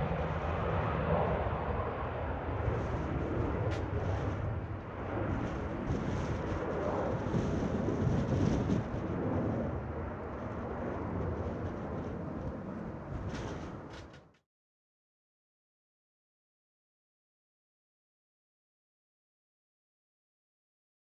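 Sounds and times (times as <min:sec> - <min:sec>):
jet engines at takeoff: 0:00.0 - 0:14.3.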